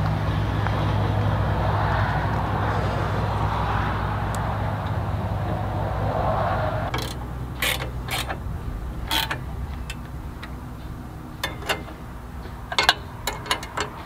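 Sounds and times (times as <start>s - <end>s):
chainsaw scraping into mill: 6.9s - 10.6s
wrench clicking on bolts: 6.9s - 14.0s.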